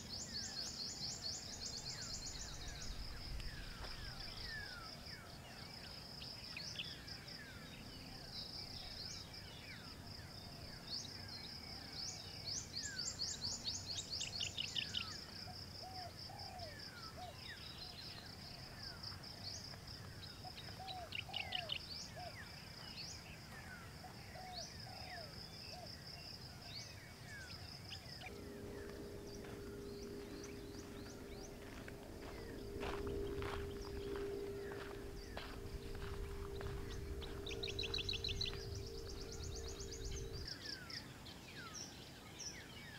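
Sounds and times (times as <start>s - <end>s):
high insect drone: 0.0s - 42.9s
birds chirping: 26.9s - 42.9s
steady low hum: 27.0s - 41.2s.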